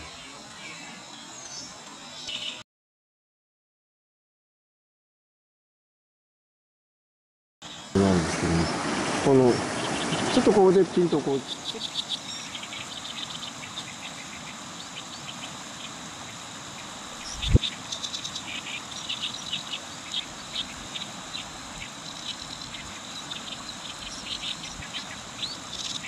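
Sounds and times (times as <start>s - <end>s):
warbler singing harsh song: 0.0s - 2.6s, 9.6s - 26.0s
river running over stones: 8.0s - 11.6s.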